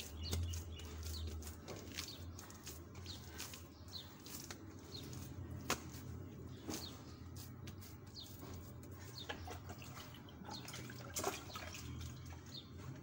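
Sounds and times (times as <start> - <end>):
hands kneading dough: 0.0 - 10.4
small bird chirping: 0.0 - 12.9.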